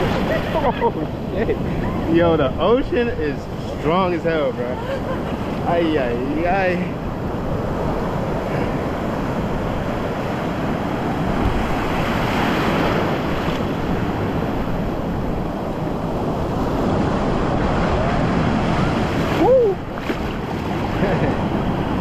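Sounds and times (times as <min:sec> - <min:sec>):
ocean waves breaking: 0:00.0 - 0:22.0
wind rumbling on microphone: 0:05.0 - 0:22.0.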